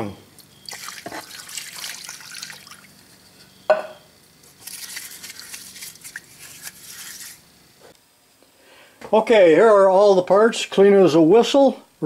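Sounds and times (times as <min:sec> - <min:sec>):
liquid pouring into plastic pan: 0:00.7 - 0:03.1, 0:04.6 - 0:07.3
brush scrubbing in liquid: 0:00.7 - 0:03.3, 0:04.4 - 0:07.4.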